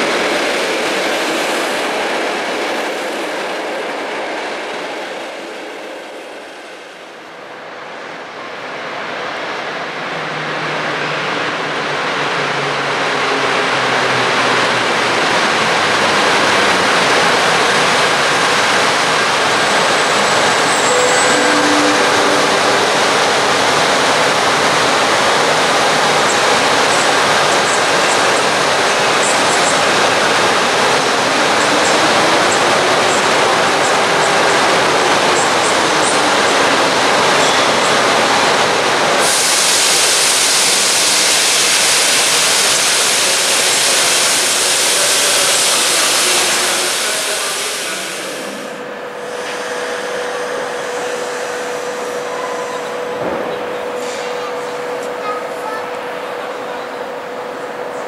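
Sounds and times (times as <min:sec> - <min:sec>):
train rolling in: 0:00.0 - 0:58.0
faint high squeals: 0:20.4 - 0:23.9.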